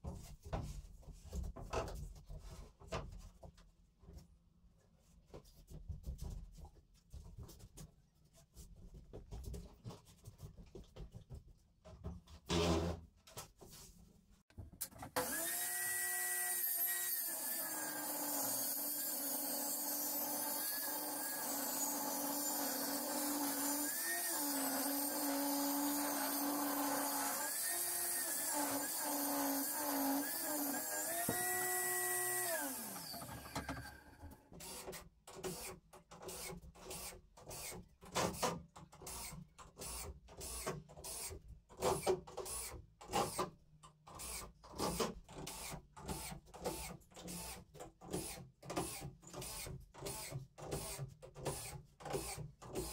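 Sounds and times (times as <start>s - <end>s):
table saw cutting wood: 15.1s - 34.8s.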